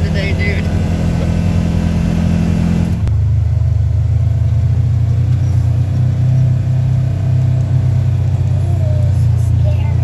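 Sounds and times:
vehicle engine droning: 0.0 - 10.0.

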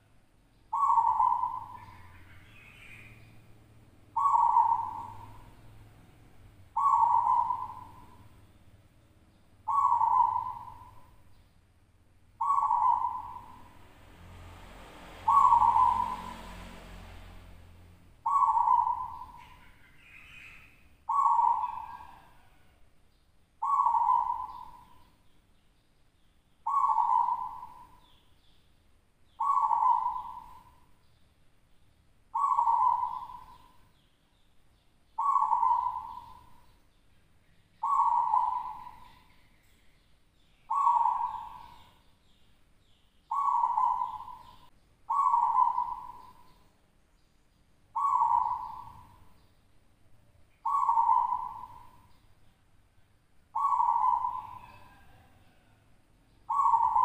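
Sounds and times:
dove cooing: 0.7 - 3.3, 4.1 - 6.0, 6.7 - 8.4, 9.6 - 11.2, 12.4 - 13.8, 15.2 - 16.5, 18.2 - 22.8, 23.6 - 25.1, 26.6 - 28.2, 29.4 - 30.9, 32.3 - 33.9, 35.2 - 36.7, 37.8 - 39.3, 40.7 - 42.0, 43.3 - 46.6, 48.0 - 49.3, 50.6 - 52.1, 53.5 - 55.8, 56.5 - 57.0.

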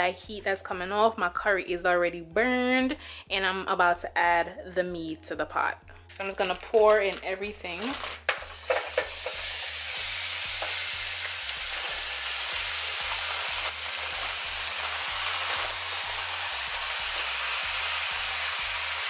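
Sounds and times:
meat sizzling in hot oil: 7.8 - 19.0.

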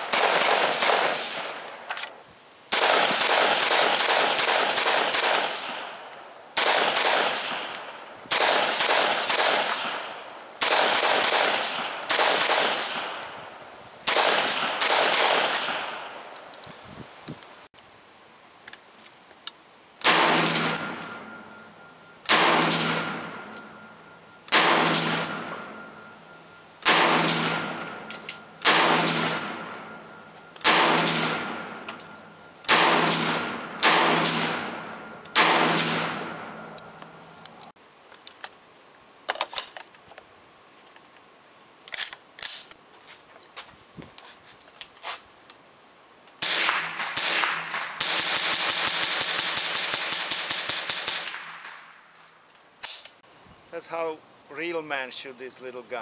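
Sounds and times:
rifle shots with echo: 0.0 - 1.9, 2.7 - 13.4, 14.0 - 16.3, 20.0 - 21.6, 22.2 - 26.1, 26.8 - 36.8, 46.4 - 51.8.

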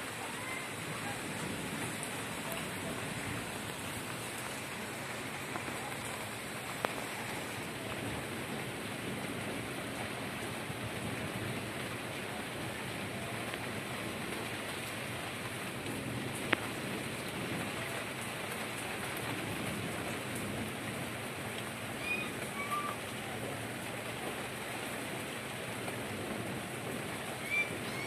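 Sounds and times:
steady rain falling: 0.0 - 28.0.

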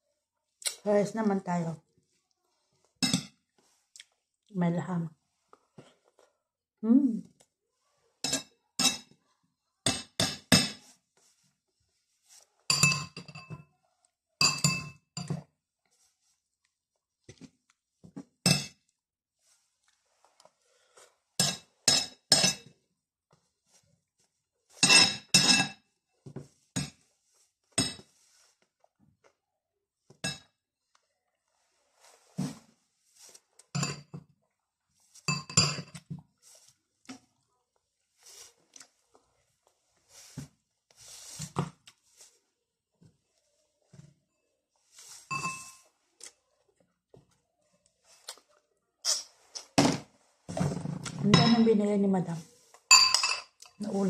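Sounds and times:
faint chewing: 2.1 - 4.5, 19.8 - 21.2, 36.7 - 40.2, 46.0 - 47.2, 47.8 - 49.8
cutlery clinking on plate: 12.7 - 13.6, 21.4 - 22.7, 24.8 - 25.8, 52.9 - 53.8
spoon clinking on ceramic bowl: 12.7 - 13.6, 14.4 - 15.4, 45.3 - 45.8, 52.9 - 53.8.

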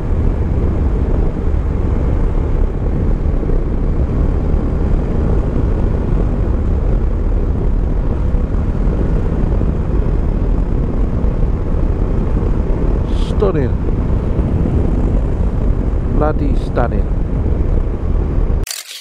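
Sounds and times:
motorcycle engine drone: 0.0 - 18.6
wind rushing over camera: 0.0 - 18.7.

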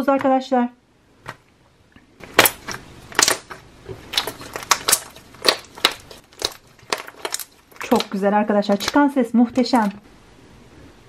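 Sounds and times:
slime clicking and popping: 2.2 - 9.0.

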